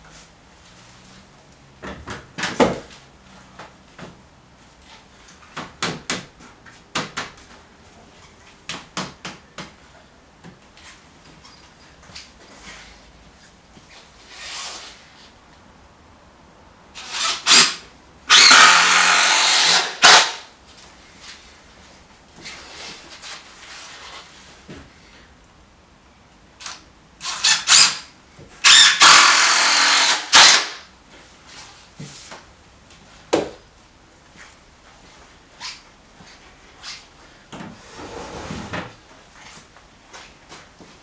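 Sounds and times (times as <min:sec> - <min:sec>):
cordless drill driving fasteners: 0:17.0 - 0:20.4, 0:26.6 - 0:30.8
drill trigger blips: 0:28.7 - 0:30.8.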